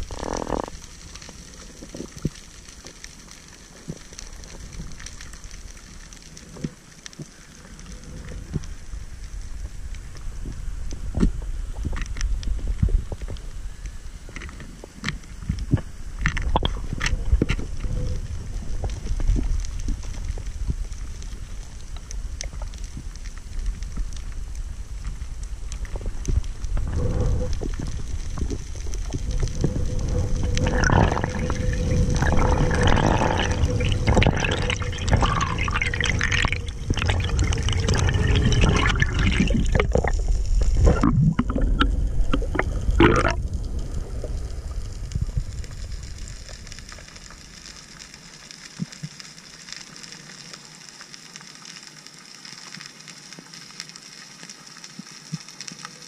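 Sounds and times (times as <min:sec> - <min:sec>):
faint steady hum: 0:00.0 - 0:56.0
underwater rumble: 0:00.0 - 0:56.0
underwater clicks and knocks: 0:26.3 - 0:43.4.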